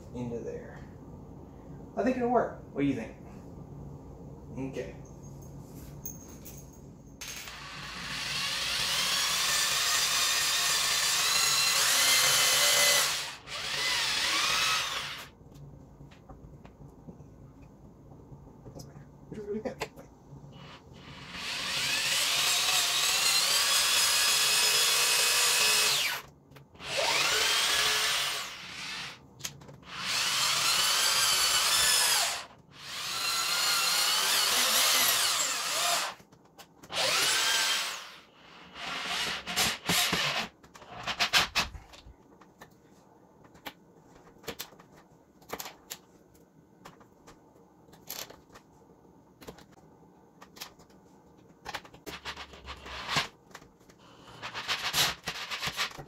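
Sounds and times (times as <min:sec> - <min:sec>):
electric drill boring into wood: 0:07.5 - 0:15.3, 0:20.6 - 0:29.2, 0:29.9 - 0:36.2, 0:36.9 - 0:40.5.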